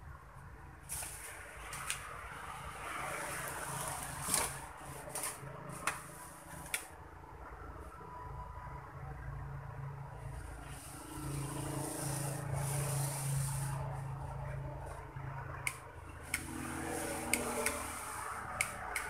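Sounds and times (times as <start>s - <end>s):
sharp clicks: 18.6s - 19.0s.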